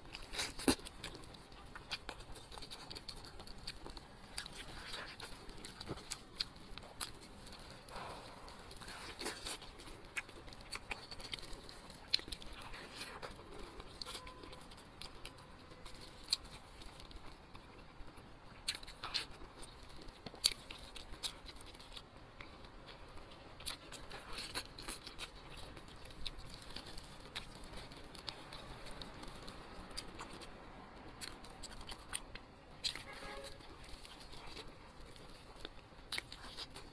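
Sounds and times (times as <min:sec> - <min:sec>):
meat tearing and squelching: 0:00.0 - 0:17.6
close-up chewing: 0:00.0 - 0:36.9.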